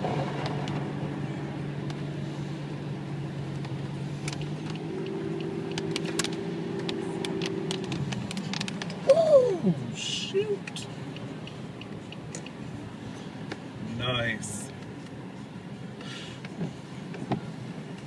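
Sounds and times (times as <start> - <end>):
car engine hum: 0.0 - 18.0
tyre noise on wet road: 3.4 - 10.4.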